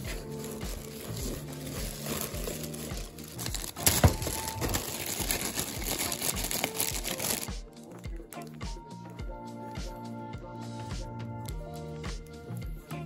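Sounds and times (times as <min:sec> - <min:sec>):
plastic packaging crinkling: 0:00.0 - 0:07.5
sharp plastic crackle: 0:00.0 - 0:07.6
music with a steady beat: 0:00.0 - 0:13.0.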